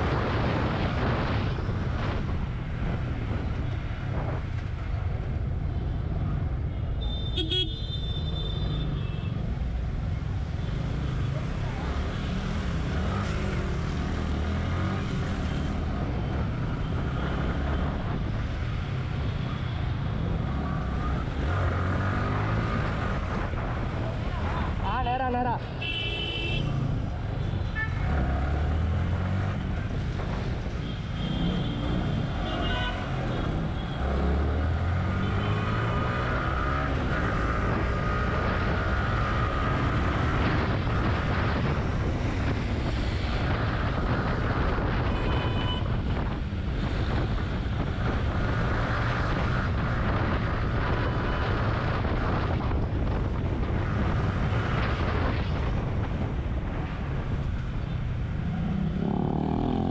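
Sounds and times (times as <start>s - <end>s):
motorcycle engine revving: 58.2s - 59.9s.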